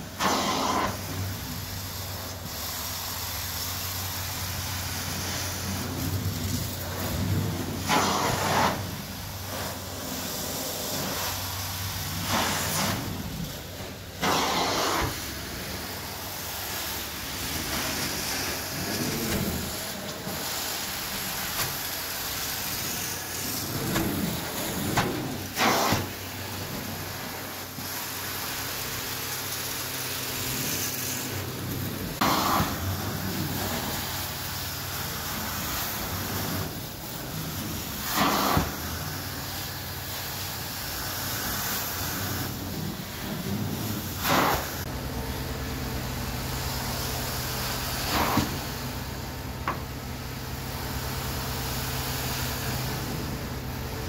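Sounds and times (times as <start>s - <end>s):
vacuum suction rushing: 12.1s - 21.6s.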